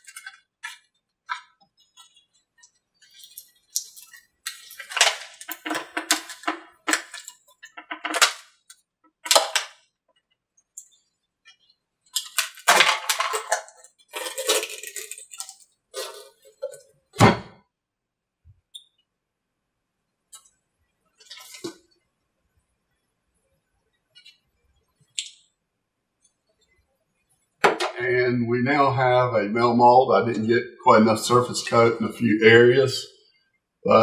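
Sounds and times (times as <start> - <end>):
sharp cracks and crackling: 0.0 - 9.9, 12.0 - 15.8.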